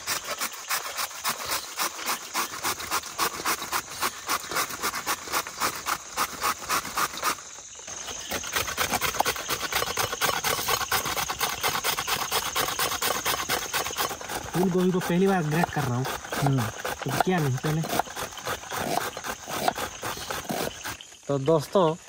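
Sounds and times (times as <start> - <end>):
grater rasping: 8.2 - 21.0.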